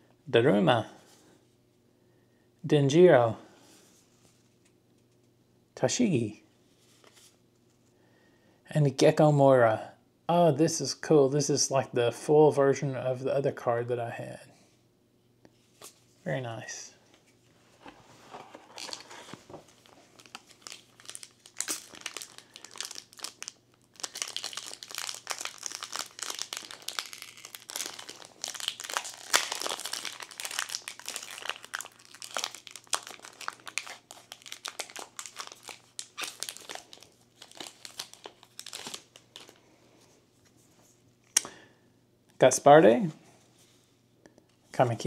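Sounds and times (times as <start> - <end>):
foil wrapper crinkling: 18.7 - 39.6.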